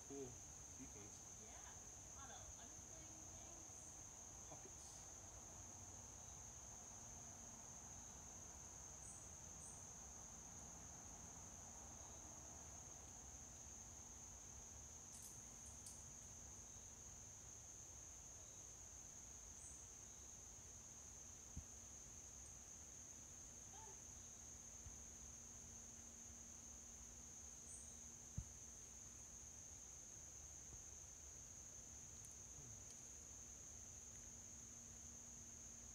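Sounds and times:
insects chorus: 0.0 - 35.9
faint ticks: 32.1 - 33.2.

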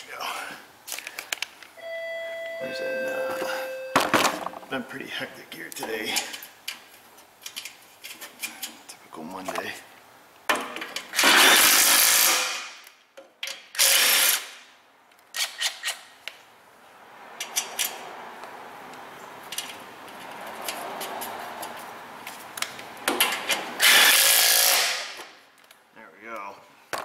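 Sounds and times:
low steady shop noise: 2.6 - 27.0
impact wrench bursts: 11.2 - 12.6, 13.8 - 14.6, 23.8 - 25.2.

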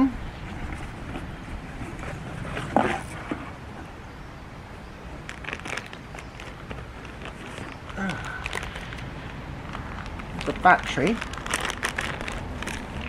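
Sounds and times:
wind rumble on microphone: 0.0 - 13.0
harness handled in cardboard box: 0.4 - 3.9, 5.3 - 8.9.

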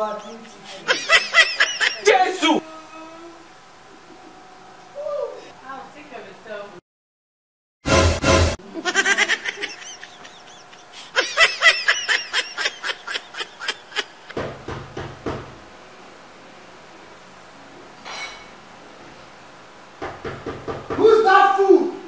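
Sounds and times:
high-pitched cackling laughter: 0.9 - 2.2, 8.7 - 14.4
lower laughter: 8.6 - 14.4.

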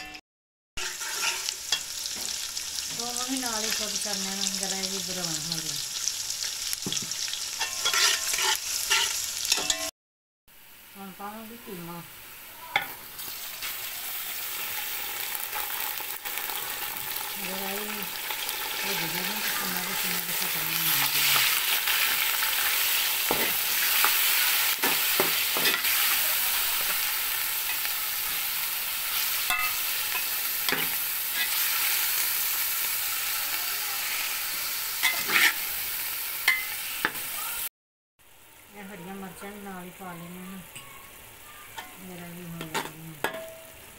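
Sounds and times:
metal spoon scraping pot: 0.8 - 1.5, 7.6 - 9.9, 35.0 - 35.6
meat sizzling in hot oil: 0.8 - 9.9, 10.6 - 43.9.

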